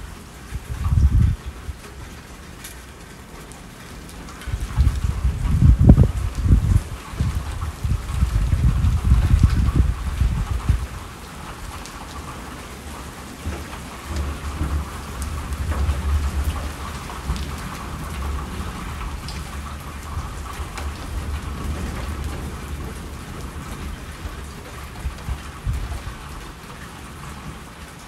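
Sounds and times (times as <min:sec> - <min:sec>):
low roll of thunder: 0:00.0 - 0:01.9, 0:04.5 - 0:11.8, 0:13.4 - 0:26.6
steady rainfall: 0:00.0 - 0:28.0.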